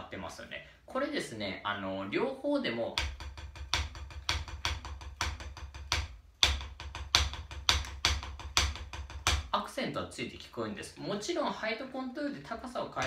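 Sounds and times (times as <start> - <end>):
drumstick striking practice pad: 2.9 - 9.6.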